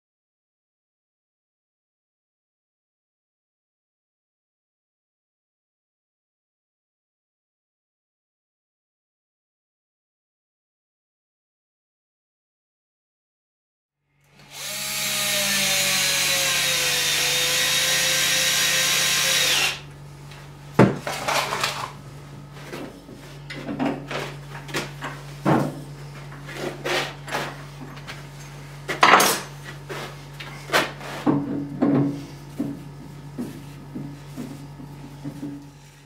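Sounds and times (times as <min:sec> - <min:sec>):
cordless drill boring into log: 0:14.3 - 0:19.9
tools and wood clattering: 0:20.8 - 0:22.0, 0:22.6 - 0:32.8.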